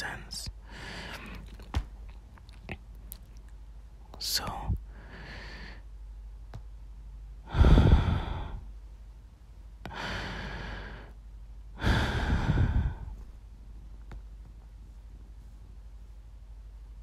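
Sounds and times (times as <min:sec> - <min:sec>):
woman breathing heavily: 0:00.6 - 0:01.7, 0:04.9 - 0:05.9, 0:07.4 - 0:08.7, 0:09.8 - 0:13.4.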